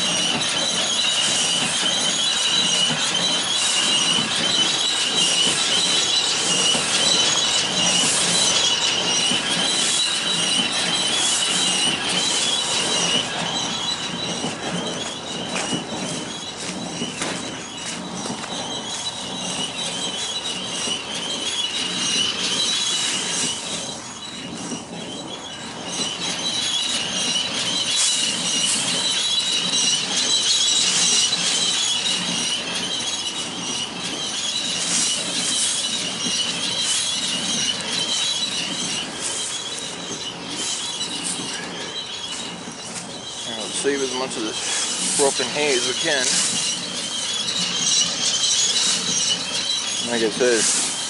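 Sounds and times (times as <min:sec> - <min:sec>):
steady high-pitched whine: 0:00.0 - 0:51.0
dry hay rustling and scraping: 0:34.7 - 0:51.0.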